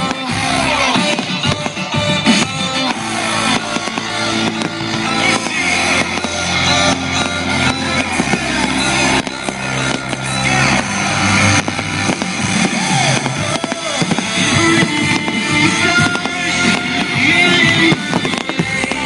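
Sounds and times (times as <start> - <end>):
fireworks bursting and crackling: 0.0 - 19.0.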